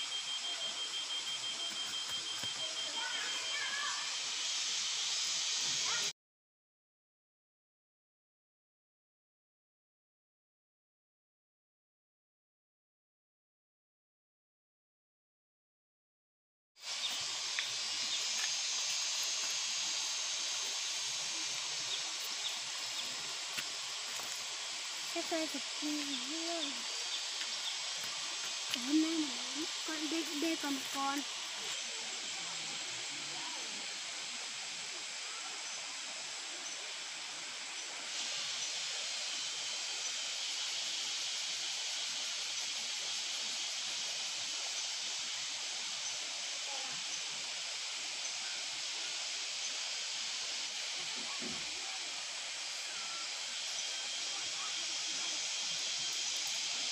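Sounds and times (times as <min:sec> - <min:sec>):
faint short chirps: 0:00.0 - 0:03.5
outdoor background hiss: 0:00.0 - 0:06.1, 0:16.8 - 0:56.9.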